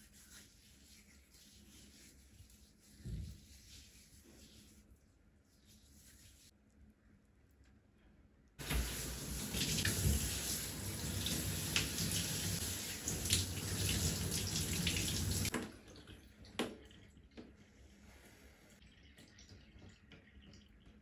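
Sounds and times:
shower spray splashing into bathtub: 8.6s - 15.6s.

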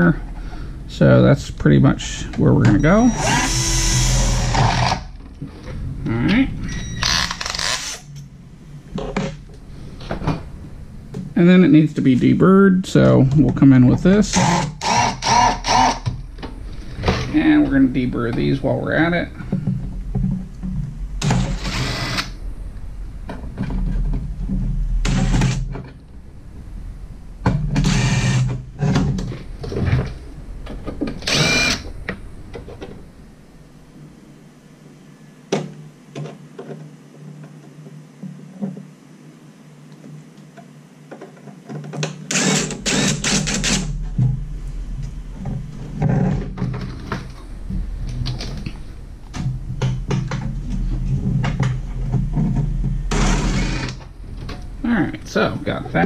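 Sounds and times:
cordless drill bursts: 3.0s - 5.0s, 14.3s - 16.1s, 21.4s - 22.3s, 27.8s - 28.4s, 31.3s - 31.8s, 42.3s - 43.9s.

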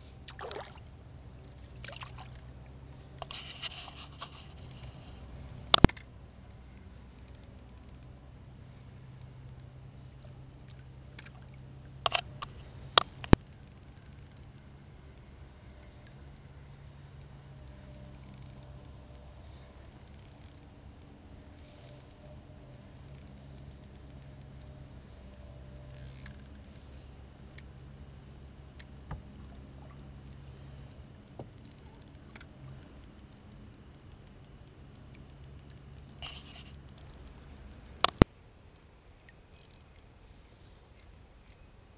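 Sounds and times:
low steady hum: 0.0s - 41.9s
fishing reel ticking: 3.2s - 8.1s, 9.2s - 9.7s, 11.1s - 16.6s, 17.2s - 24.7s, 25.7s - 26.9s, 30.8s - 38.2s, 39.5s - 40.0s.

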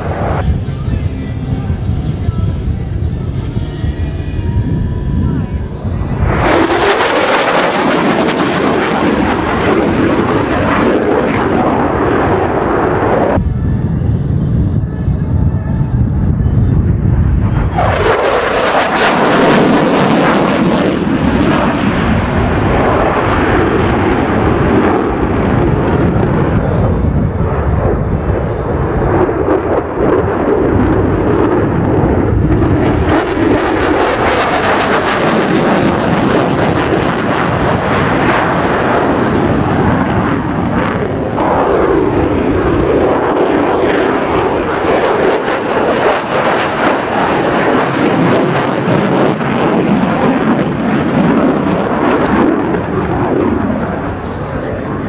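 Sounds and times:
jet engine roar: 0.0s - 55.0s.

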